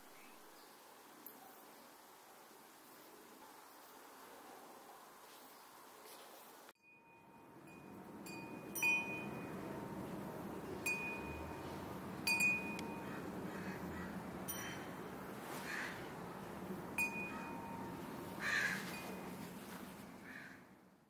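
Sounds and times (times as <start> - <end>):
soft steady hiss: 0.0 - 21.0
chimes ringing: 6.8 - 13.4, 14.2 - 15.4, 16.6 - 19.6.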